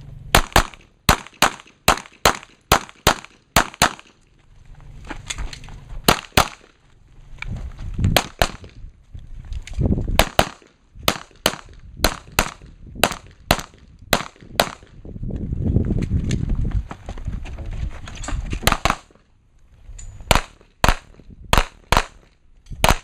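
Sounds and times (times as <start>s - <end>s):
handgun shots: 0.4s - 4.2s, 6.1s - 6.7s, 10.2s - 14.9s.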